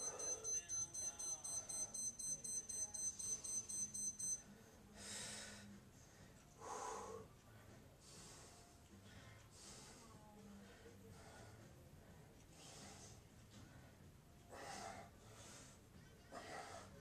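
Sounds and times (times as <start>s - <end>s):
electronic timer alarm beeping: 0.0s - 4.5s.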